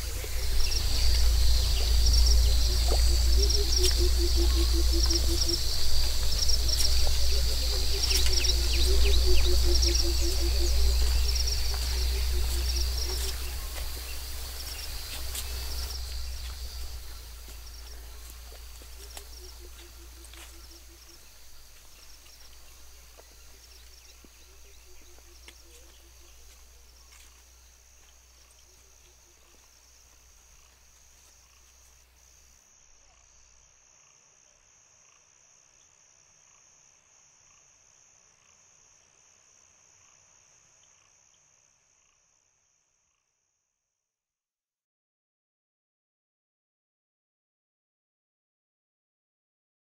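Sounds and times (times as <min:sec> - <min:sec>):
low rumble: 0:00.0 - 0:20.3
frogs calling: 0:00.0 - 0:38.8
high pulsing insect trill: 0:00.0 - 0:43.8.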